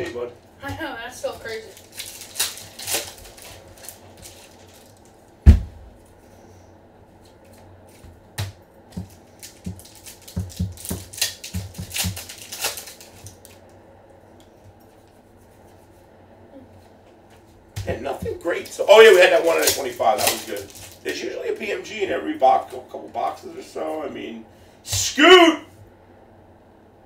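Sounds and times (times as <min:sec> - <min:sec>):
low steady hum: 0:00.0 - 0:27.0
heavy thump on table: 0:05.4 - 0:05.9
cards clicking and tapping: 0:08.4 - 0:13.4.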